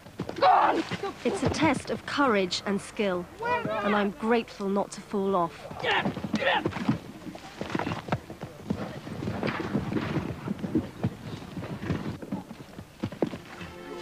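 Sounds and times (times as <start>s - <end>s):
horses galloping on turf: 0.0s - 2.2s, 5.4s - 14.0s.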